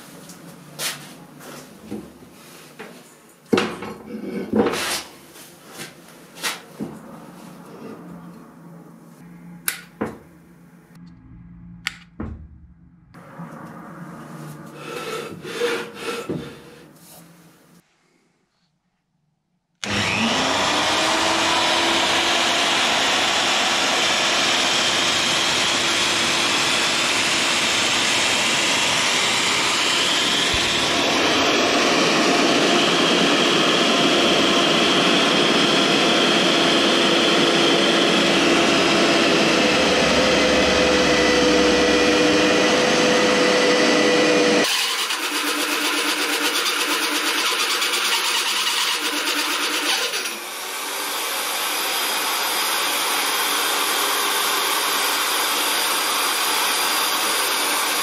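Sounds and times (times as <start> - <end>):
cutter boring into steel: 19.8 - 58.0
electric drill motor whine: 19.8 - 58.0.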